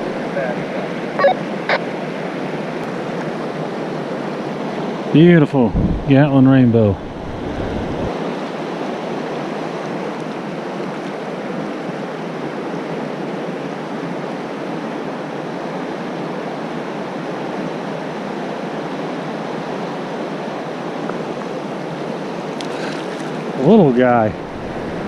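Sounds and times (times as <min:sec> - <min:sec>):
water rushing over rocks: 0:19.0 - 0:25.0.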